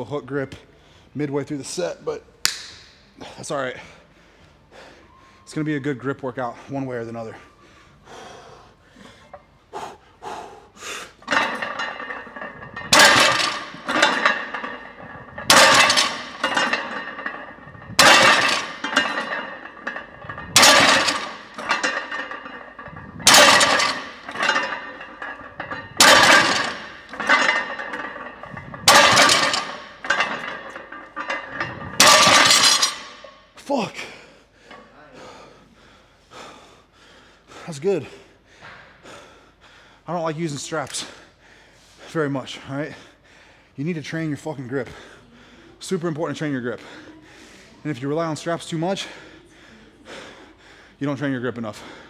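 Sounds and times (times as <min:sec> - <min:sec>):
barbell plates clanking on floor: 0:11.2 - 0:33.3.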